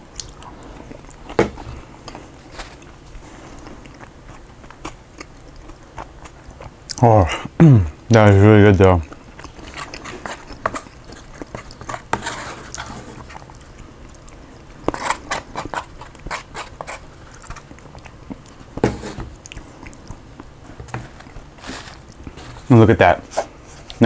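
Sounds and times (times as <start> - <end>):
chewing and mouth sounds: 0.1 - 7.0, 9.0 - 12.1, 12.7 - 22.4
plastic spoon scraping a bowl: 9.6 - 13.4, 14.9 - 17.6, 18.8 - 19.3, 20.8 - 23.9.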